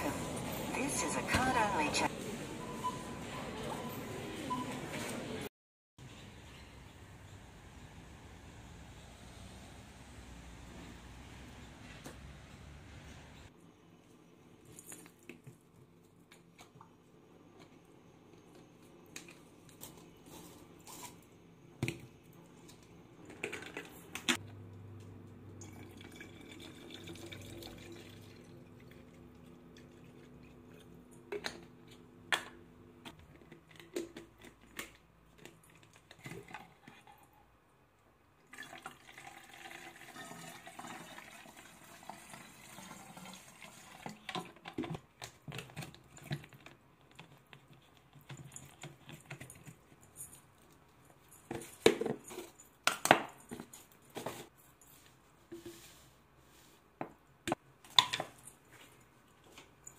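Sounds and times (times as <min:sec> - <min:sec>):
liquid pouring between bottles: 0:25.6 - 0:30.9, 0:38.4 - 0:44.3.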